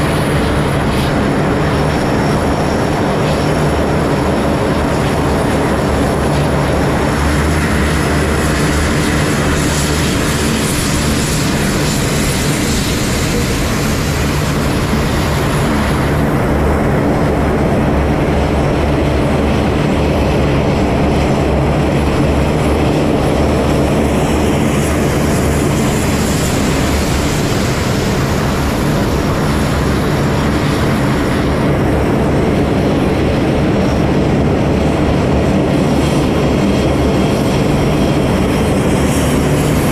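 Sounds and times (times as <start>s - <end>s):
turboprop aircraft engines droning: 0.0s - 39.9s.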